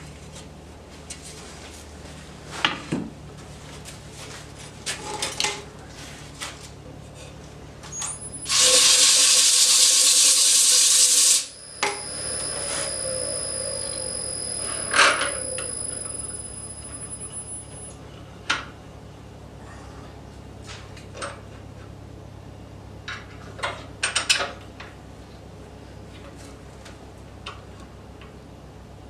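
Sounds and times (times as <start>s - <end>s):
steady high whine: 7.9s - 18.3s
loud hiss: 8.3s - 16.5s
low hum: 11.4s - 18.2s.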